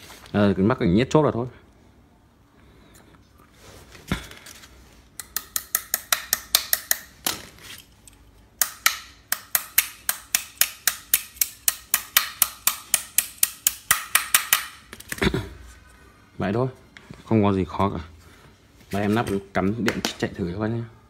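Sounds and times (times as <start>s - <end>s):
wrench tapping on metal: 5.2s - 7.1s.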